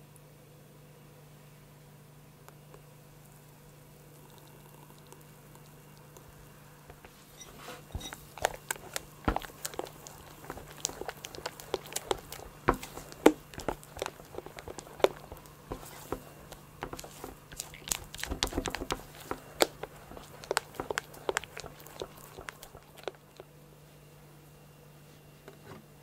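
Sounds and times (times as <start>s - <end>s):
mousse mixture squelching: 4.0s - 23.6s.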